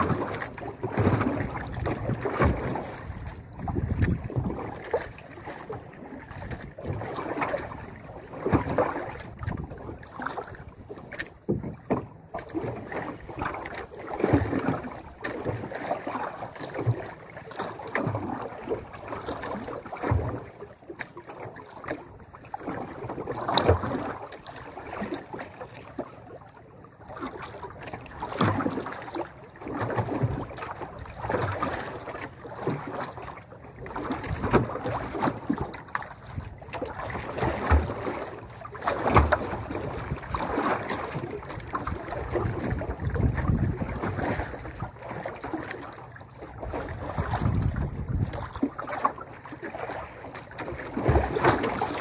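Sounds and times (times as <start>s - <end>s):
knocks on boat: 0.0s - 4.6s, 11.1s - 12.5s
water slapping against boat hull: 0.0s - 52.0s.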